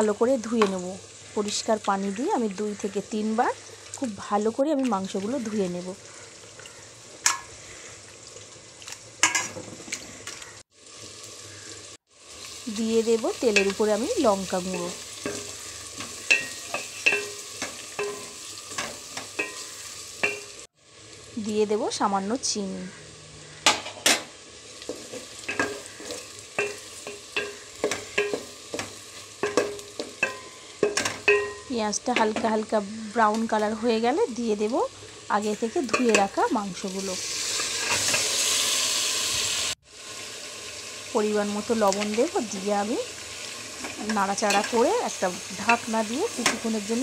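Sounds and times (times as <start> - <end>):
onions sizzling in oil: 0.0 - 47.0
utensil clinking against pot: 14.7 - 20.5, 24.9 - 32.4.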